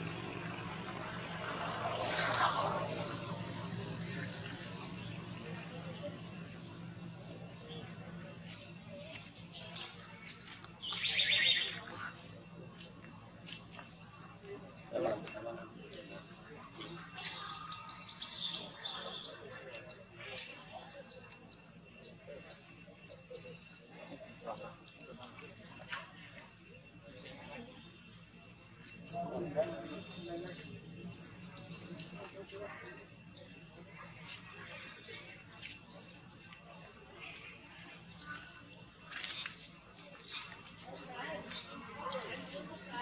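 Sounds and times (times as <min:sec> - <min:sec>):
bird chirping: 0:04.0 - 0:12.4.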